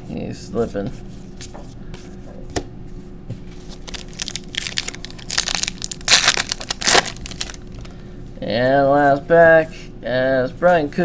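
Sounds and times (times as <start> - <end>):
foil wrapper tearing and crinkling: 3.7 - 7.9.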